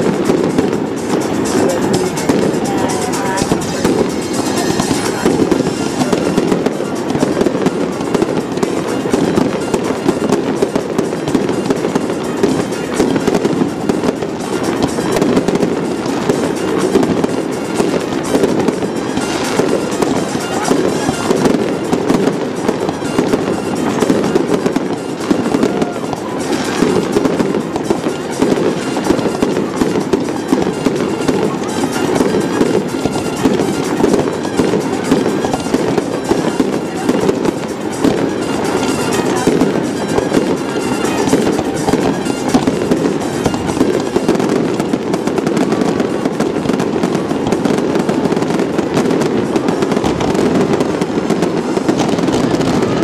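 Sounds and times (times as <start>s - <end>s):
fireworks bursting and crackling: 0.0s - 53.0s
music playing: 0.0s - 53.0s.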